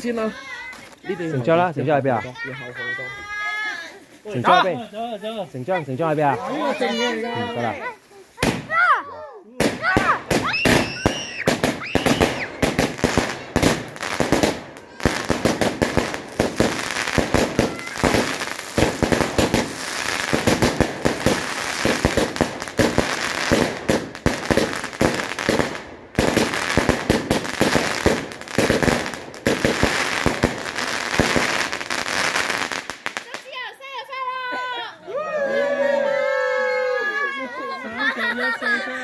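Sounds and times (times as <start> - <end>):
fireworks bangs and crackling: 5.9 - 8.9, 9.6 - 33.6.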